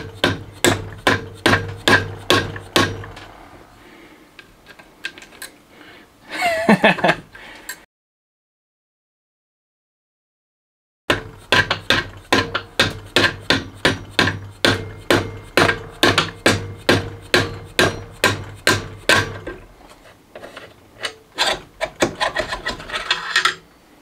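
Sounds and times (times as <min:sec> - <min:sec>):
hammer striking metal: 0:00.0 - 0:03.8, 0:11.1 - 0:19.7.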